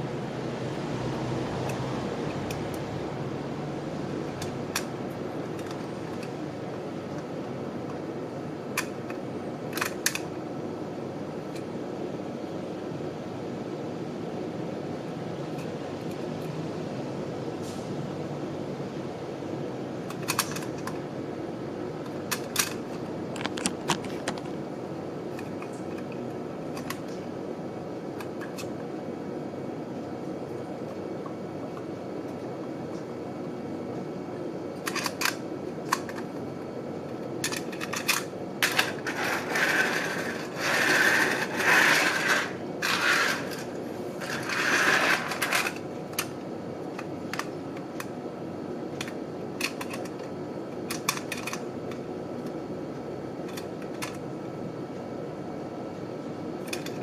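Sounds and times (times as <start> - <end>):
toy handling clicks and taps: 20.1 - 21.0, 25.4 - 27.1, 53.5 - 54.2
rubbing and scraping: 38.8 - 45.6.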